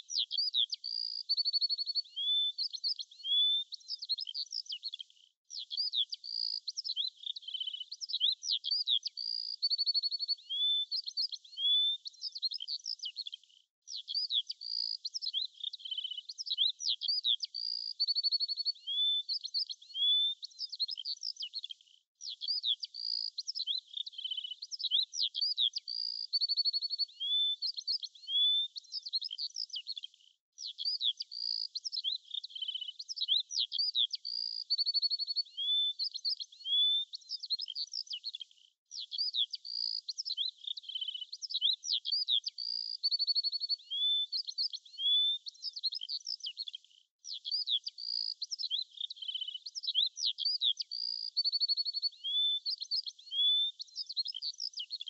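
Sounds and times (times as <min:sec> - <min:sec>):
birdsong chirps and trills: 0:30.6 - 0:46.7, 0:47.3 - 0:55.0.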